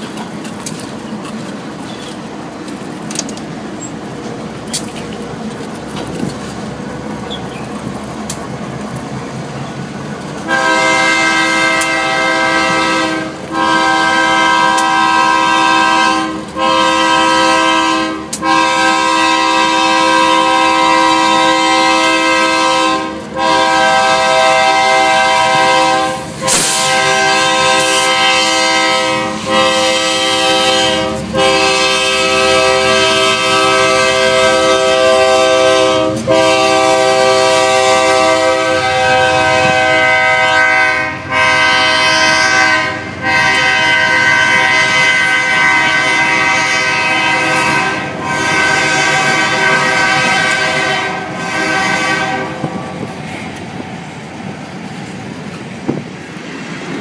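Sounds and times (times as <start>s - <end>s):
diesel locomotives running: 0.0s - 57.0s
locomotive air horn blasts: 10.4s - 52.8s.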